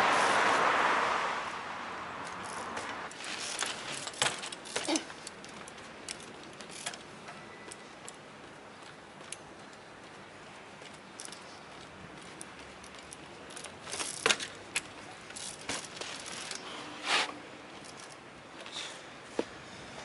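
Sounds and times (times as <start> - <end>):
bicycle knocking on stone: 2.4 - 10.2, 10.8 - 16.6.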